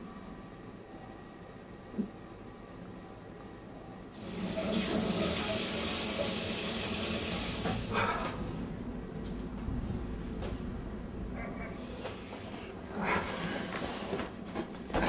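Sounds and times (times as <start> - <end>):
tap water running into metal sink: 4.2 - 7.9.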